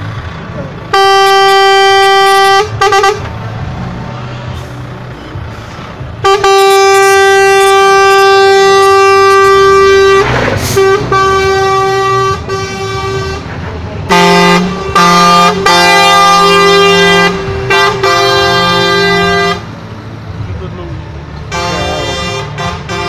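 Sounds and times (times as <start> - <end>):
diesel engines rumbling: 0.0 - 23.0
truck air horn blasts: 0.9 - 3.3, 6.2 - 19.8, 21.5 - 23.0.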